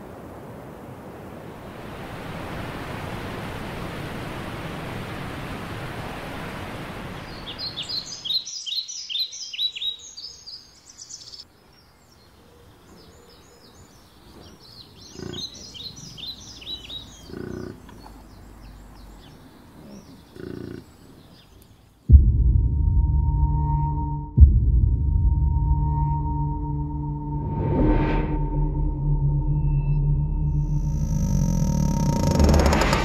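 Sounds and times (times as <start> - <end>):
rushing waterfall: 0.0 - 8.4
small birds chirping: 7.2 - 22.1.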